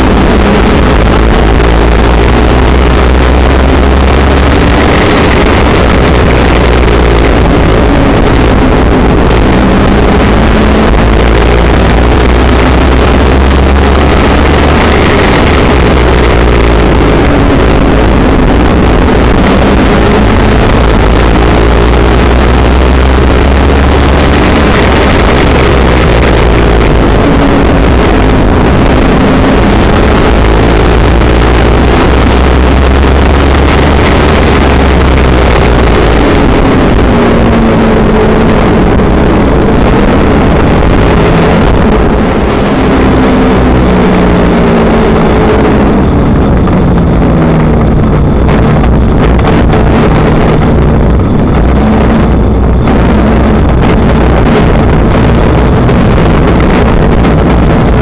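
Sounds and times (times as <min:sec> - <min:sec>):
race car engine at speed: 0:00.0 - 0:58.0
wind buffeting on microphone: 0:00.0 - 0:58.0.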